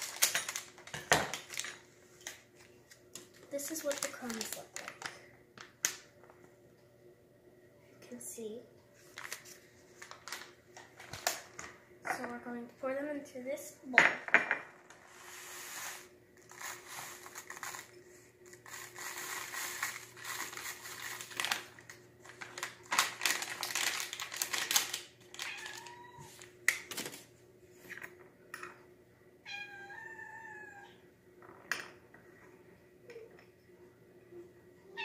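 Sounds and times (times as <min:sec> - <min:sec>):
plastic packet crinkling: 0:00.0 - 0:02.4, 0:03.2 - 0:06.0, 0:09.1 - 0:11.7, 0:16.4 - 0:27.2
crumbs poured into plastic bowl: 0:15.4 - 0:17.9
cat meowing: 0:25.4 - 0:26.4, 0:29.5 - 0:31.0.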